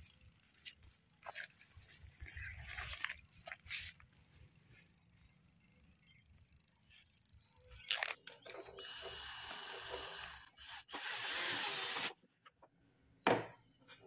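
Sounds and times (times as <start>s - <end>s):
powered screwdriver driving screw: 8.8s - 12.2s.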